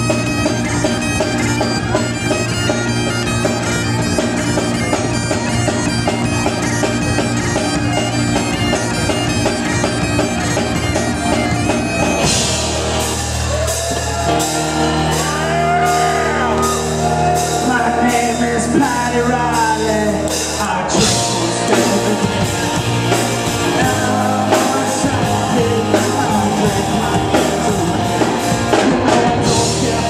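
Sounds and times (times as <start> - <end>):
bagpipes playing fast tune: 0.0 - 18.1
drums: 0.0 - 30.0.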